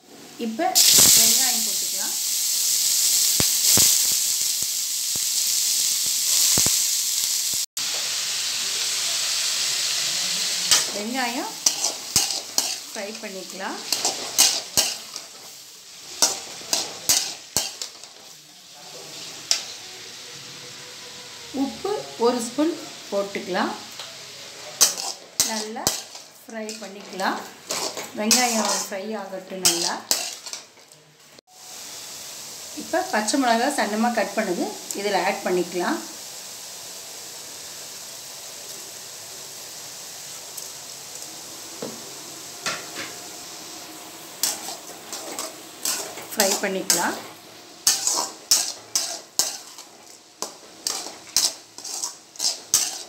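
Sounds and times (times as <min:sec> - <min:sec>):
onions sizzling in oil: 0:00.0 - 0:53.0
spatula scraping pan: 0:10.6 - 0:18.3, 0:24.7 - 0:30.9, 0:44.4 - 0:53.0.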